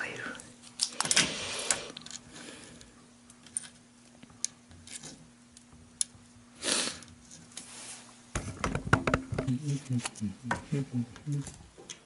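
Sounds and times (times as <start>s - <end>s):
small wooden parts clicking and tapping: 3.3s - 6.2s.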